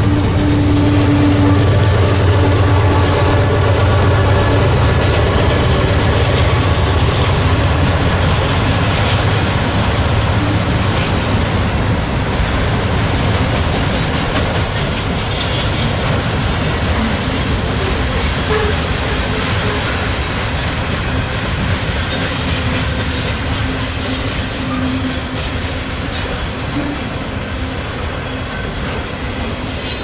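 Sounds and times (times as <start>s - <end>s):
steel wheels rolling on rail: 0.0s - 30.0s
high wheel squeal: 13.6s - 20.0s, 28.8s - 30.0s.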